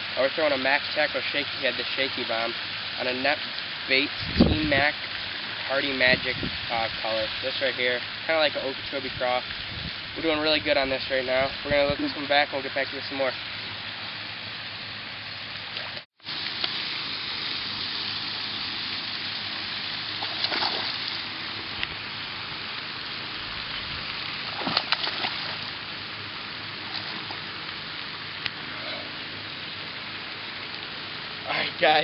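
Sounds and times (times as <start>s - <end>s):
outdoor hiss: 0.0s - 32.0s
fish splashing in water: 14.9s - 31.5s.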